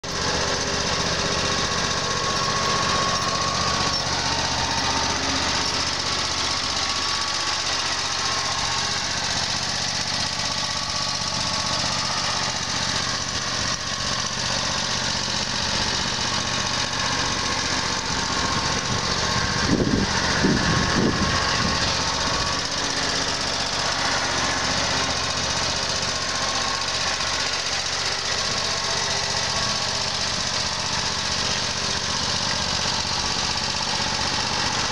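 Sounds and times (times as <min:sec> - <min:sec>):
mower engine running: 0:00.0 - 0:34.9.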